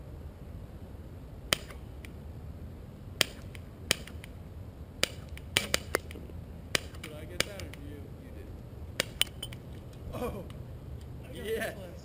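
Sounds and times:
pellets striking targets: 0:01.5 - 0:02.0, 0:03.2 - 0:04.3, 0:05.0 - 0:07.9, 0:09.0 - 0:09.7.

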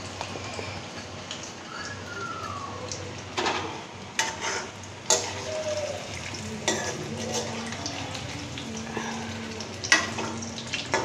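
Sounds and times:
food sizzling in hot oil: 0:00.0 - 0:11.0
metal spoon scraping pan: 0:04.2 - 0:05.4.

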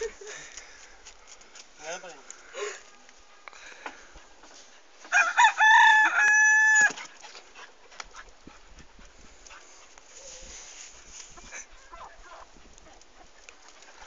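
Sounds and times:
rooster crowing: 0:05.0 - 0:07.0.

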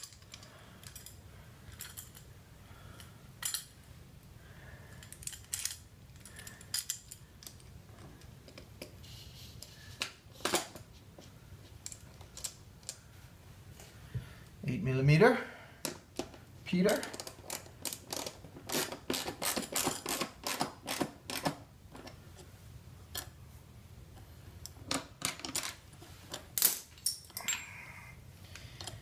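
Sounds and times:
small metal clicks and clinks: 0:00.0 - 0:02.3, 0:03.0 - 0:03.8, 0:04.9 - 0:07.7, 0:26.6 - 0:27.8.

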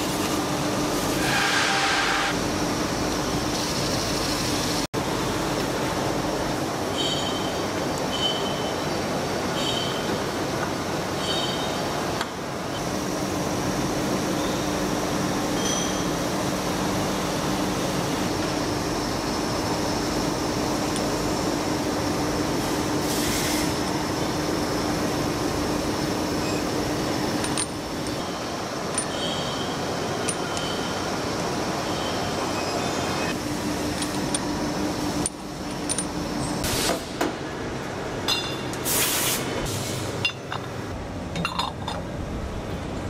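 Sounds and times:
machine shop machinery running: 0:11.9 - 0:41.2
metal parts clinking: 0:28.9 - 0:29.2, 0:35.2 - 0:36.2.

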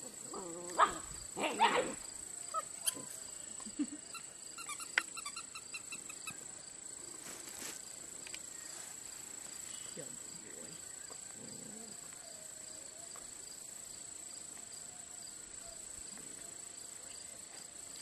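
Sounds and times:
short high squeaks: 0:04.2 - 0:06.4
steady high hiss: 0:05.5 - 0:11.0, 0:12.4 - 0:18.0.

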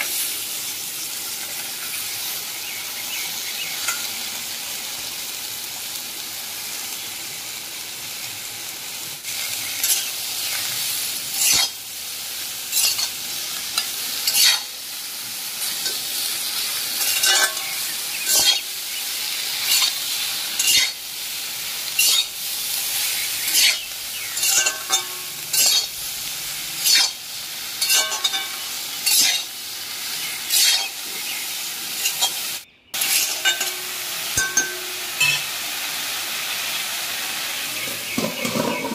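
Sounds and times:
vegetables sizzling in oil: 0:00.0 - 0:38.9
metal spatula scraping wok: 0:09.3 - 0:11.9, 0:12.6 - 0:14.8, 0:15.5 - 0:29.6, 0:30.2 - 0:31.2, 0:31.9 - 0:35.6, 0:37.8 - 0:38.9.

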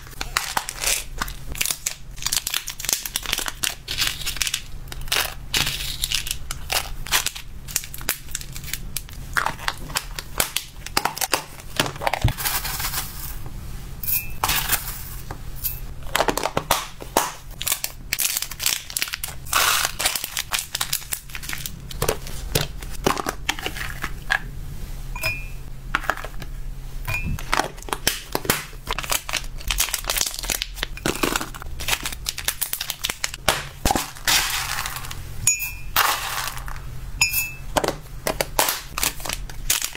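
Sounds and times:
plastic bags crinkling: 0:00.0 - 0:13.4, 0:17.6 - 0:24.2, 0:27.2 - 0:35.2, 0:38.3 - 0:39.9.

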